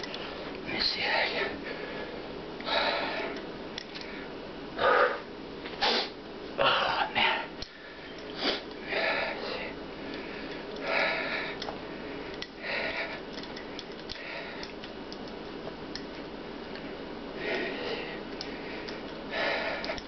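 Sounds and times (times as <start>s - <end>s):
man breathing hard: 1.0s - 14.8s, 17.3s - 20.0s
nose sniffs: 8.4s - 8.7s.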